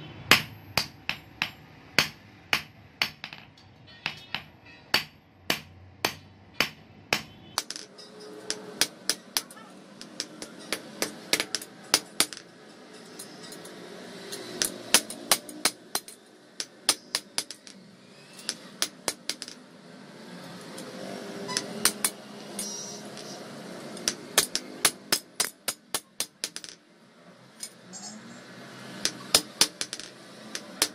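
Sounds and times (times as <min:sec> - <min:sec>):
hammer striking steel on anvil: 0:00.3 - 0:03.4, 0:04.0 - 0:12.4.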